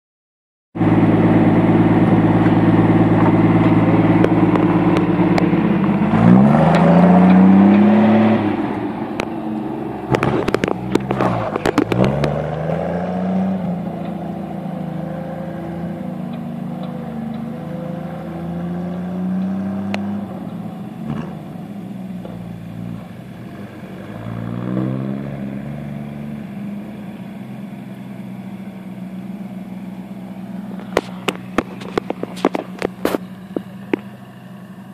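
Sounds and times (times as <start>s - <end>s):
truck engine idling and revving: 0.8s - 34.9s
truck pulling away shifting gears: 0.8s - 34.9s
clattering: 30.8s - 34.1s.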